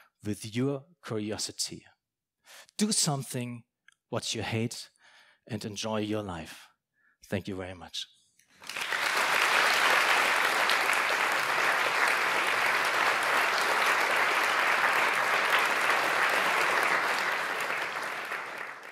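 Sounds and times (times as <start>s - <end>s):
audience applauding: 8.6s - 18.9s.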